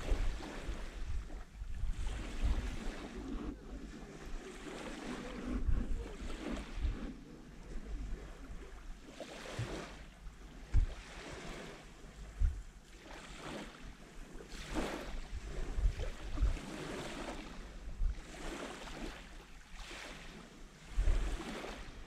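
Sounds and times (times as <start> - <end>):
wind buffeting microphone: 0.0 - 9.0, 10.6 - 12.8, 14.7 - 19.1
small waves lapping on sand: 0.0 - 22.0.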